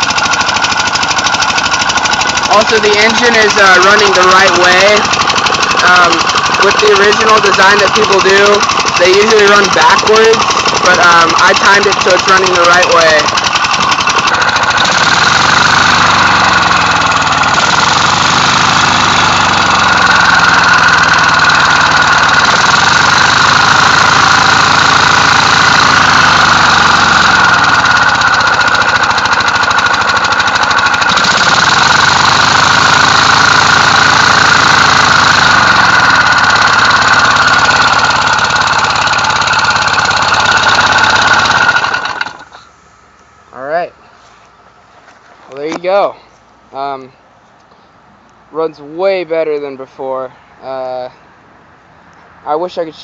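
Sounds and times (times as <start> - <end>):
engine puffing on compressed air: 0.0 - 42.6.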